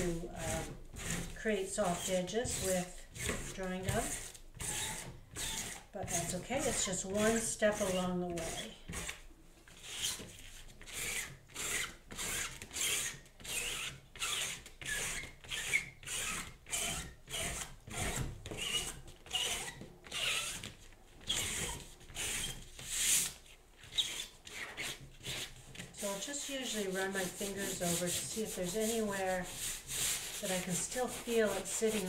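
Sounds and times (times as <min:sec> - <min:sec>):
fingers rubbing on paper: 0:00.4 - 0:09.1, 0:21.3 - 0:32.0.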